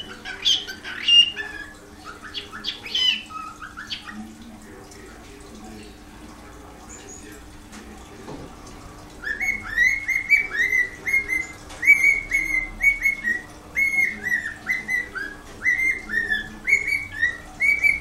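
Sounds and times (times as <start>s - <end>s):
cockatiel whistling: 0.0s - 4.2s, 9.2s - 18.0s.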